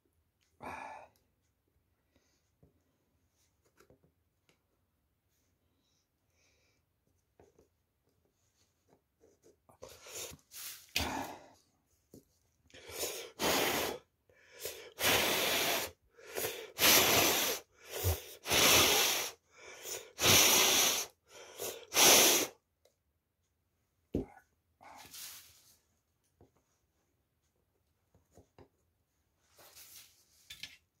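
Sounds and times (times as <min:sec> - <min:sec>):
short bursts of hissing: 0:12.9 - 0:14.0, 0:14.6 - 0:22.6.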